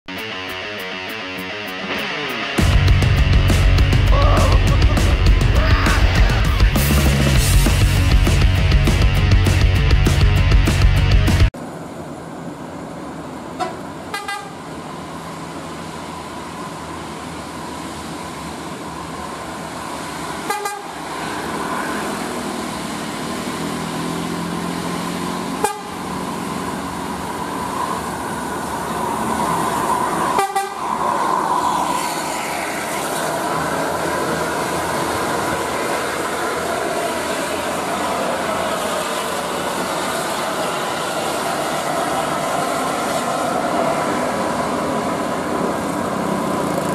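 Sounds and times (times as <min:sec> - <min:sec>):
bus engine labouring: 0:00.1 - 0:46.9
bus horn: 0:13.6 - 0:14.6, 0:20.4 - 0:21.0, 0:25.6 - 0:26.1, 0:30.3 - 0:30.8.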